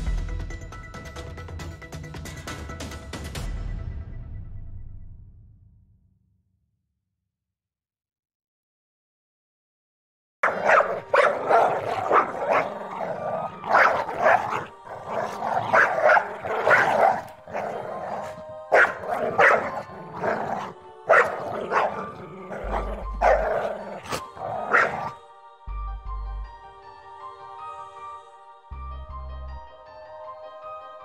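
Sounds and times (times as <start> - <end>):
dogs barking and growling: 10.4 - 25.2.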